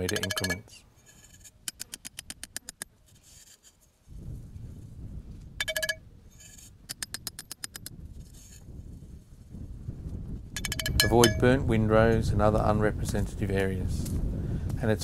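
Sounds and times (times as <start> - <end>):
hammer tapping metal tube: 0.0 - 0.6, 5.6 - 6.0, 10.6 - 11.5
wind rumble on microphone: 4.0 - 15.0.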